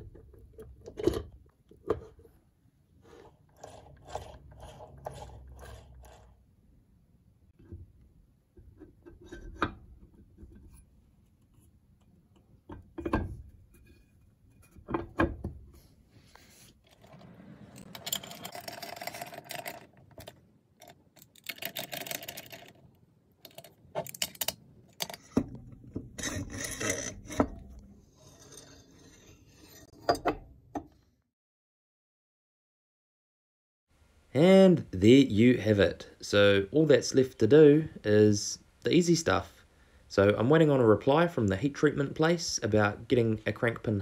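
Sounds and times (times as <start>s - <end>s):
metal scraping and rubbing: 16.4s - 20.0s, 26.0s - 30.4s.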